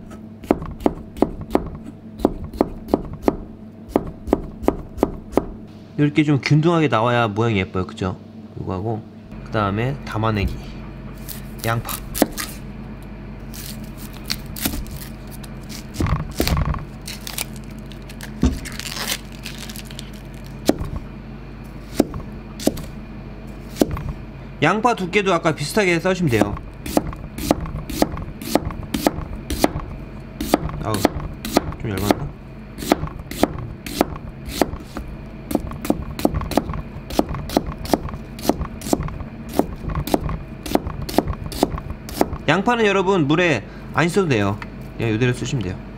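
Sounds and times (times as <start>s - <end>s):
knife slicing onion on board: 0.0s - 5.6s, 11.2s - 12.6s, 20.6s - 21.1s, 21.8s - 22.9s, 23.7s - 24.2s, 26.3s - 42.5s
onion skin crinkling: 11.2s - 12.6s, 13.4s - 21.0s.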